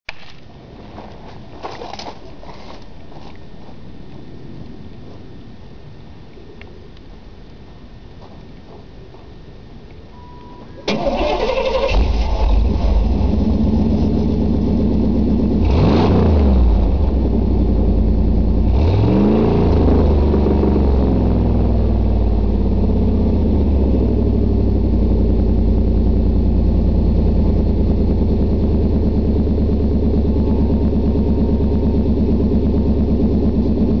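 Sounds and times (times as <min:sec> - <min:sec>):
truck engine revving and idling: 0:10.9 - 0:34.0.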